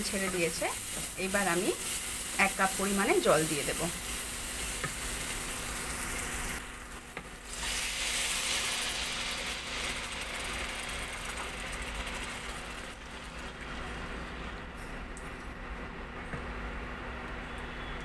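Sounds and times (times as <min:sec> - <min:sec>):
masala sizzling in hot oil: 0:00.0 - 0:14.2.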